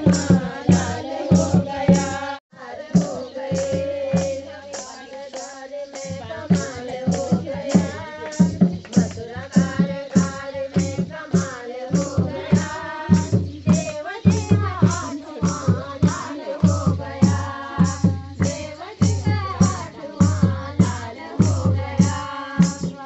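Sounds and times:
dholak drum beat: 0:00.0 - 0:23.0
women singing folk song: 0:00.0 - 0:23.0
hand claps: 0:04.2 - 0:10.9.

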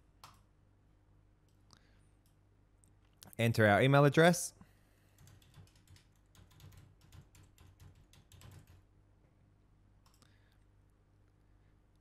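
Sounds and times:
faint keyboard typing: 0:00.2 - 0:00.5, 0:05.0 - 0:08.9, 0:10.0 - 0:10.6.

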